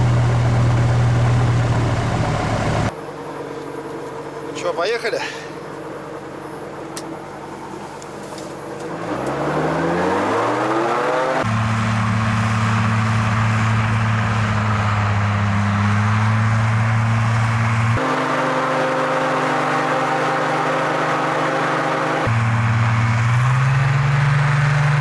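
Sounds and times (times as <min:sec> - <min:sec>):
vehicle engine revving: 0:08.3 - 0:25.0.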